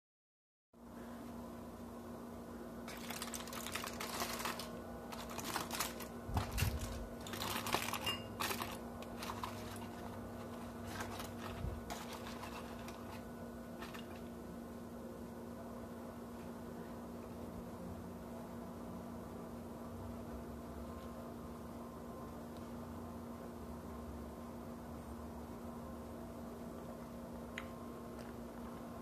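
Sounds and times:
steady low hum: 0:00.8 - 0:29.0
foil and leaf crinkling: 0:02.9 - 0:14.3.

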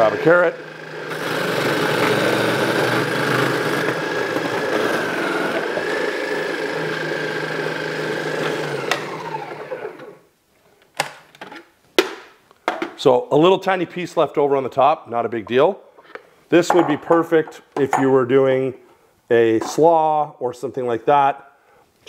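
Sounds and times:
blender motor whining: 0:00.0 - 0:10.3.

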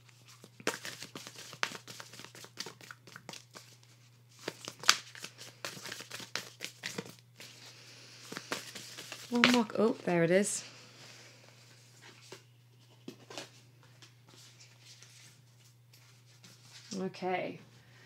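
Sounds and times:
cards shuffled by hand: 0:00.0 - 0:09.8.

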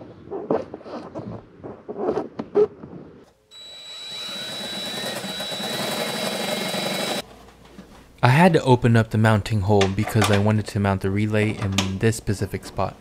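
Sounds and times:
power drill whining: 0:03.5 - 0:07.2.

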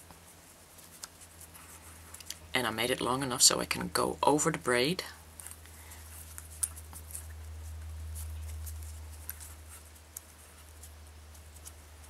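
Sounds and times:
fingers rustling cords: 0:00.0 - 0:12.0.

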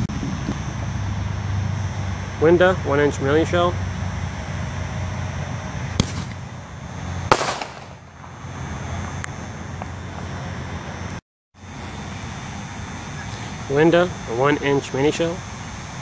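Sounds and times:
steady low hum: 0:00.0 - 0:16.0
mortar launch crack: 0:05.9 - 0:06.4, 0:07.3 - 0:08.0
shell bursting bang: 0:05.9 - 0:06.4, 0:07.3 - 0:08.1.

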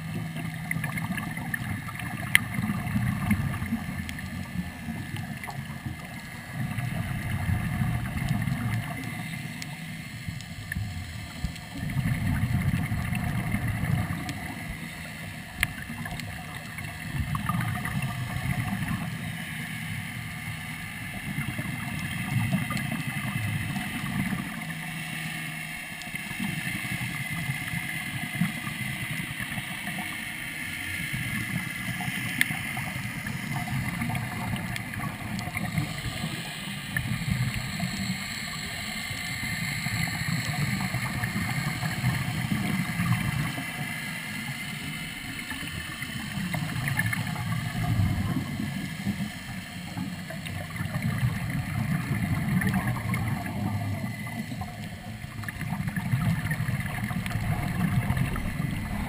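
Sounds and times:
regulator hiss: 0:19.1 - 0:52.4
diver exhaling air bubbles: 0:50.6 - 0:59.0.

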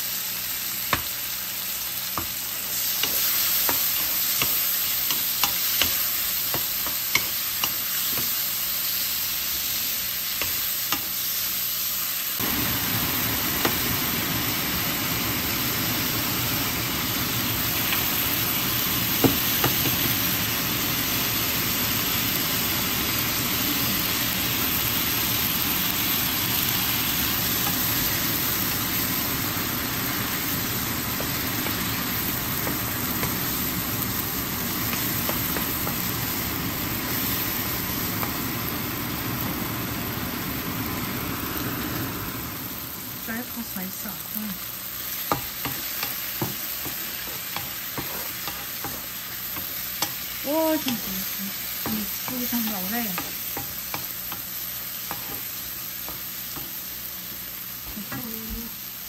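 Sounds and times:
tomatoes sizzling in a wok: 0:00.0 - 0:59.0
spatula scraping a pan: 0:45.2 - 0:51.0.

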